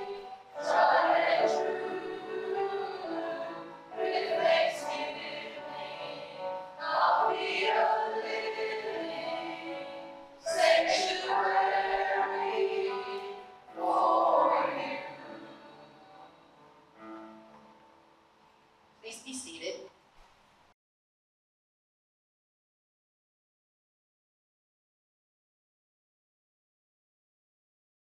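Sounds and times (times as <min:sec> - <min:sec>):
group of voices singing: 0:00.0 - 0:16.6.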